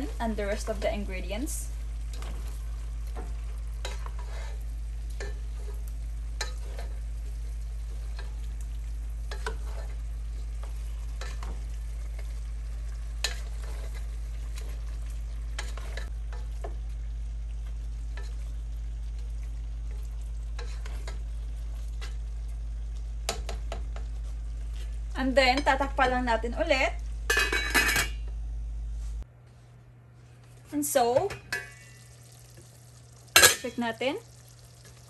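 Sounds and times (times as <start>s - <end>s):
low hum: 25.8s - 30.4s.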